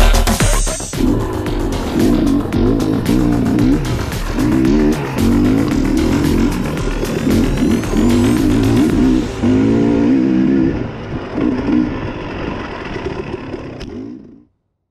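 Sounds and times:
dirt bike engine revving: 0:00.0 - 0:14.5.

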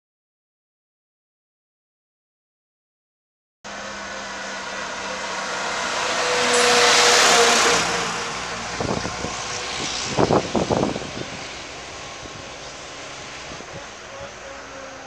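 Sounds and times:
vehicle passing close by: 0:03.7 - 0:15.0
wind bumps on microphone: 0:08.5 - 0:12.6.

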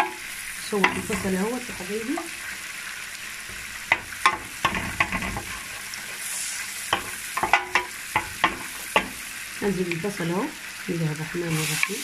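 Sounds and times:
wooden spoon knocking on pan: 0:00.0 - 0:00.2, 0:00.8 - 0:02.4, 0:03.4 - 0:05.6, 0:06.9 - 0:09.2
butter sizzling in a frying pan: 0:00.0 - 0:12.0.

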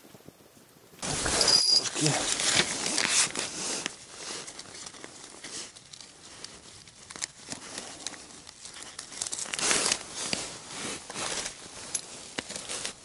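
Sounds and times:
material crinkling and rustling: 0:01.0 - 0:13.0.

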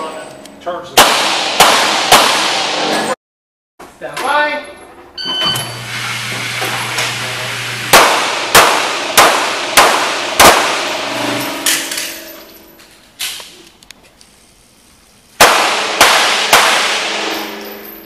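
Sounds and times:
handgun shots echoing indoors: 0:01.0 - 0:03.1, 0:07.9 - 0:12.5, 0:15.4 - 0:18.0
short electronic beep: 0:05.2 - 0:05.8.

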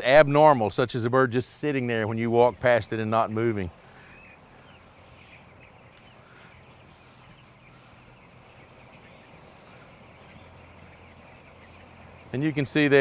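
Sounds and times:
chicks chirping: 0:01.6 - 0:13.0
steady low hum: 0:01.6 - 0:13.0.

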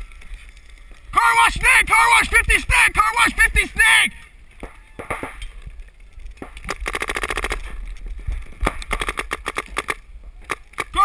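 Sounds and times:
paintball marker firing: 0:04.6 - 0:05.5, 0:06.4 - 0:07.8, 0:08.6 - 0:11.0.

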